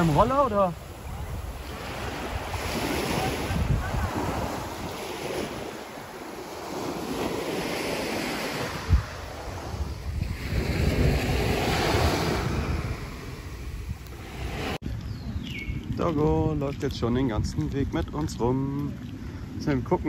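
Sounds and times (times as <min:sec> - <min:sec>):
surf washing onto beach: 0:00.0 - 0:14.8
wind buffeting microphone: 0:00.0 - 0:20.0.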